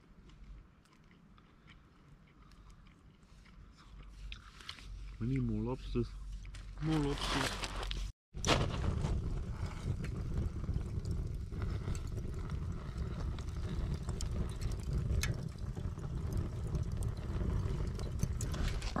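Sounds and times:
charcoal fire crackling: 0:04.8 - 0:19.0.

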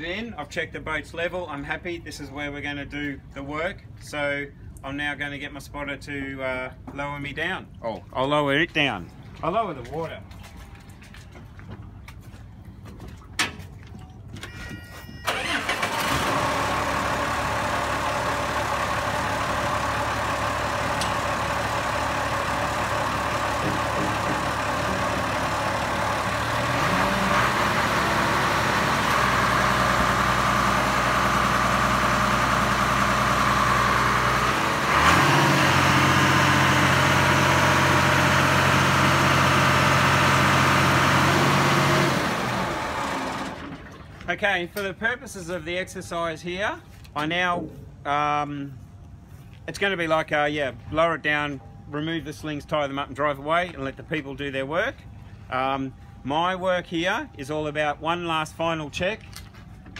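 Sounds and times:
heavy machine engine running: 0:15.2 - 0:44.1.

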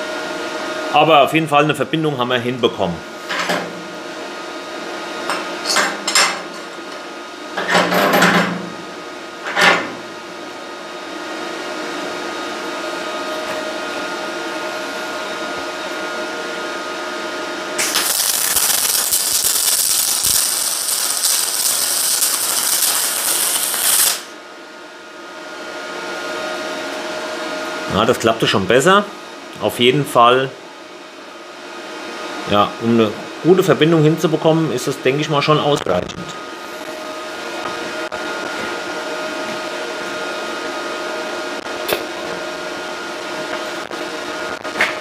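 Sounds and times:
steady machine hum: 0:00.0 - 0:45.0
welding arc hissing: 0:17.8 - 0:24.4.

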